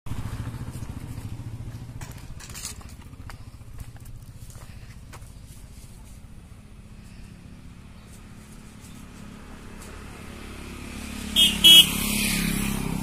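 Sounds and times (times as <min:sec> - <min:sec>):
motorcycle engine idling: 0:00.1 - 0:09.9.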